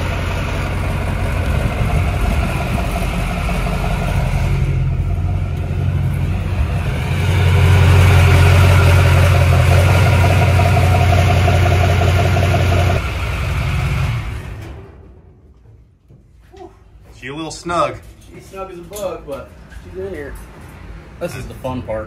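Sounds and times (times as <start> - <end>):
diesel truck engine running: 0.0 - 15.3.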